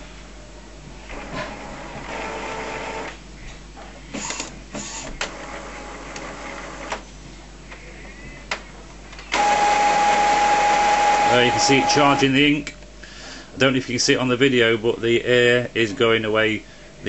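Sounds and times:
loud printer motor whine: 1.1 - 3.2, 4.1 - 7.0, 9.3 - 12.4
printer motor whir: 1.1 - 3.2, 4.1 - 7.0, 9.3 - 12.4.

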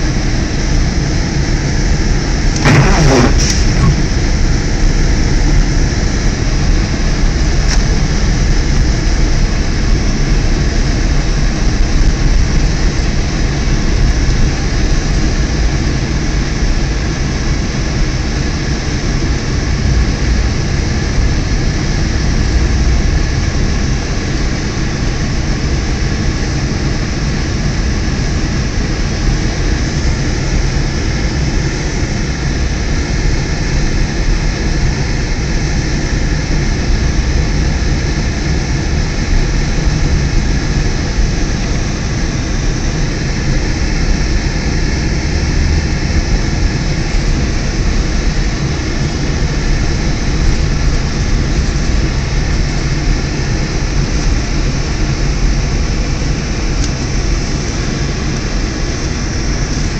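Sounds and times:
car engine and road noise: 2.6 - 4.6
low hum: 2.6 - 4.6.

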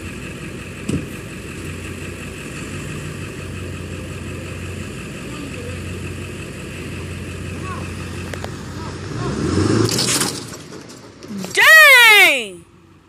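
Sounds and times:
truck engine running: 0.0 - 13.0
sharp thump: 0.9 - 1.1.

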